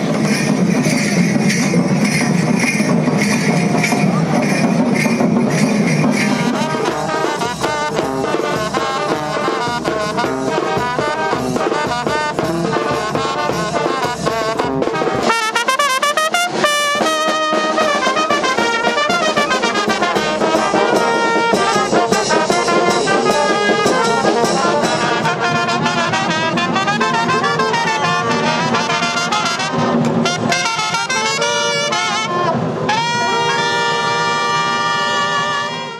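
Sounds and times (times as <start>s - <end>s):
brass band playing: 0.0s - 35.9s.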